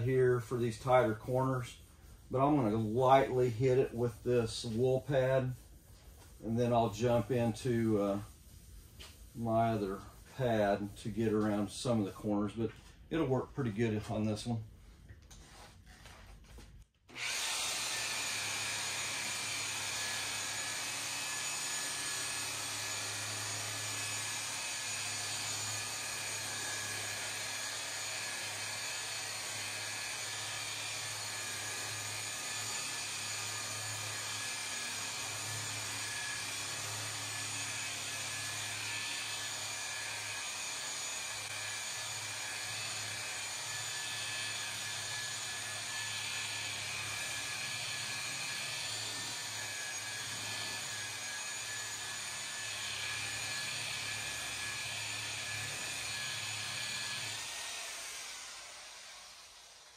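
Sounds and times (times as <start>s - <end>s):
rotary polisher running: 17.1s - 59.9s.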